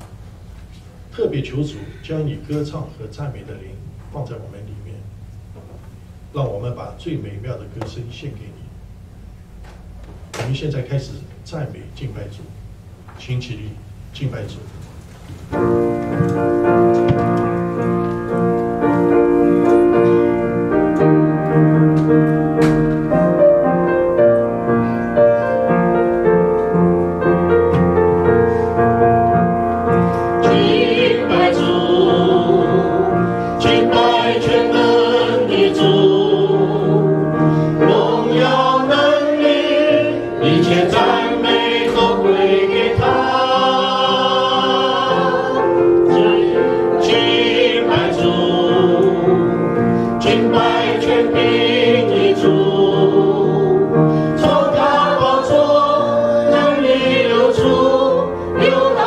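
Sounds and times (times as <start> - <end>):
piano playing: 15.5 - 59.0
group singing a hymn: 29.8 - 59.0.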